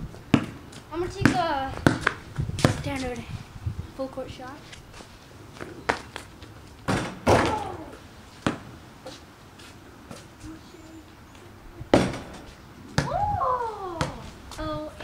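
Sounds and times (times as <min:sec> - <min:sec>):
basketball hitting rim: 0:01.2 - 0:02.9, 0:06.9 - 0:07.7, 0:11.9 - 0:13.2
person exclaiming: 0:07.4 - 0:08.0, 0:13.0 - 0:14.3.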